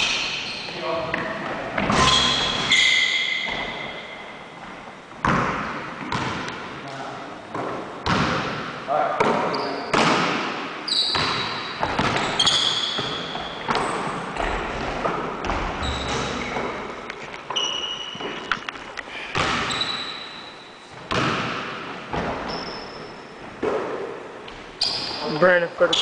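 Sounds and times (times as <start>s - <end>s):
sneakers squeaking: 0.0s - 6.8s, 7.4s - 26.0s
basketball bouncing on wood floor: 4.6s - 6.6s, 7.5s - 8.6s, 11.1s - 18.5s, 19.3s - 20.0s, 21.1s - 22.9s.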